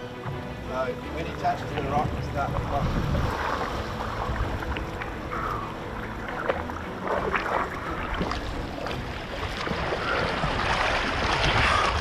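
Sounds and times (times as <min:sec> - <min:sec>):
wind buffeting microphone: 0:01.6 - 0:06.0
sea water splashing against rocks: 0:02.5 - 0:12.0.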